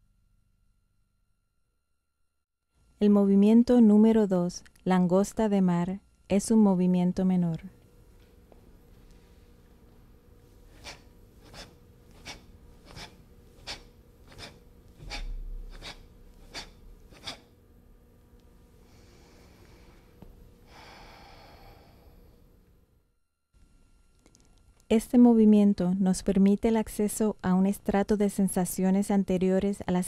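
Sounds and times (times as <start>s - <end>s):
soft breaths: 18.7s - 22.5s.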